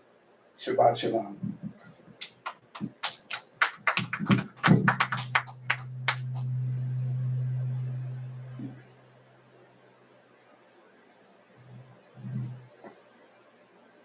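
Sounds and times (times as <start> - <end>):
low electrical hum: 0.0 - 14.0
microphone handling taps and knocks: 1.4 - 2.2, 4.2 - 5.1.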